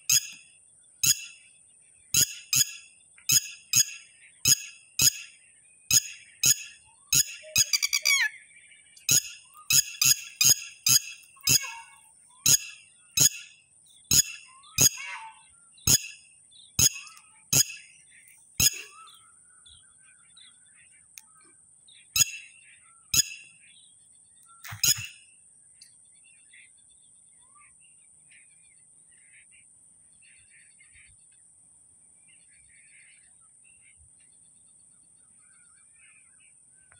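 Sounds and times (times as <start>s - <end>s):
faint bird chirps: 0.0s - 36.9s
lapwing calling: 2.2s - 8.4s, 9.0s - 16.2s, 16.8s - 19.9s, 24.5s - 25.2s.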